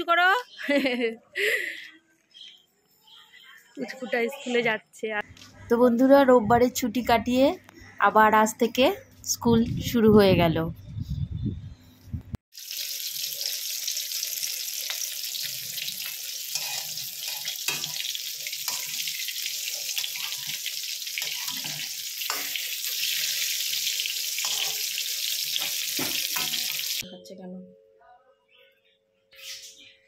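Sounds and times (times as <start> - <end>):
eggplant frying in hot oil: 12.5 - 27.0.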